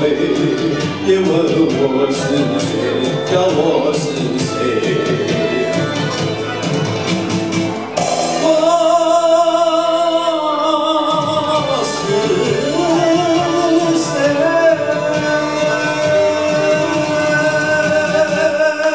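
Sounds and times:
man singing into microphone: 0.0s - 6.2s, 8.1s - 18.9s
backing music track: 0.0s - 18.9s.

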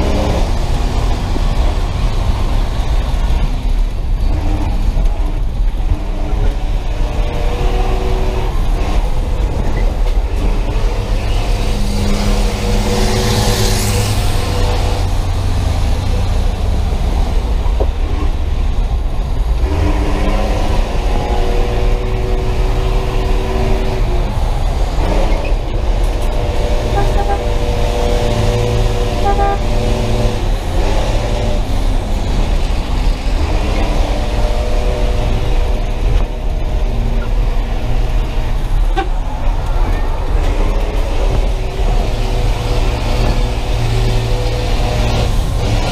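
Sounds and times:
bus engine running hard: 0.0s - 45.9s
road noise: 0.0s - 45.9s
vehicle horn blasts: 26.8s - 27.6s, 29.1s - 29.9s.

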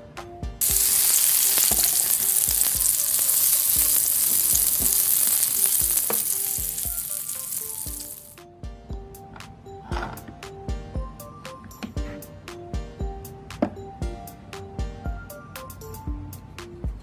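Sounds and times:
food sizzling on grill: 0.6s - 8.4s.

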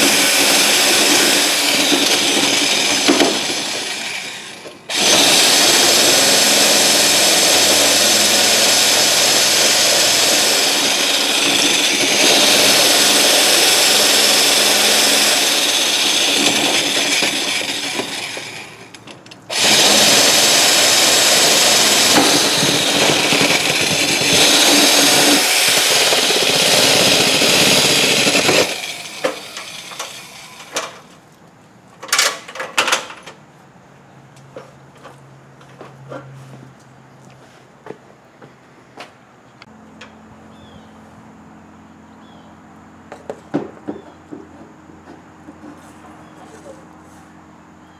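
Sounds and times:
power tool running: 0.0s - 31.0s.

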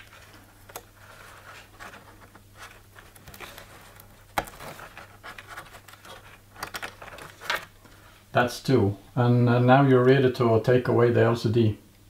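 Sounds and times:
fingers scratching and rubbing: 0.0s - 7.6s.

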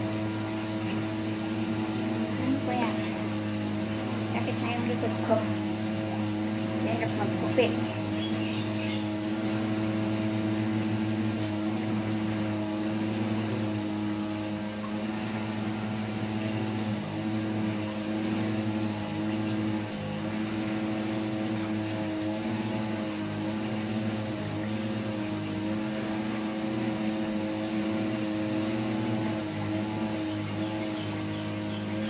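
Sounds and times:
electric hair clippers buzzing: 0.0s - 32.0s.

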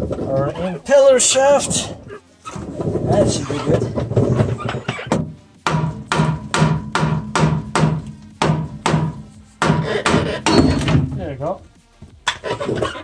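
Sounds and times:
music with percussive beat: 5.1s - 11.4s.

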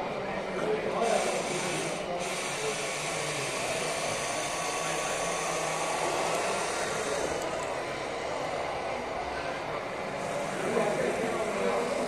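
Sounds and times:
toy truck electric motor whirring: 1.0s - 8.4s.

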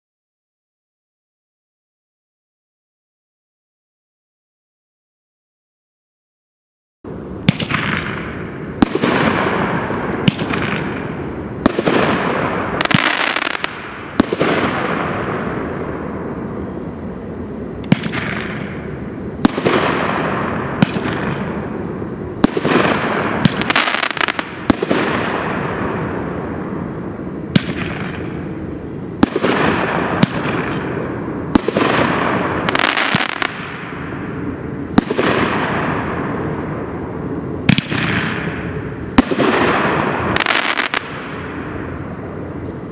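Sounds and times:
firework cake bangs with hissing tails: 7.5s - 15.8s, 17.9s - 21.7s, 22.4s - 26.2s, 29.2s - 34.1s.

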